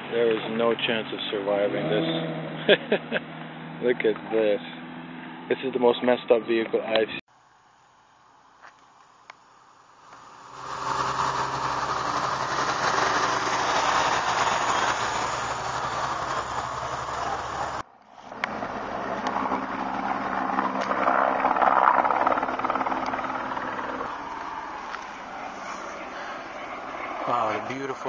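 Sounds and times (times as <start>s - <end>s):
engine-like mechanical humming: 9.9s - 28.0s.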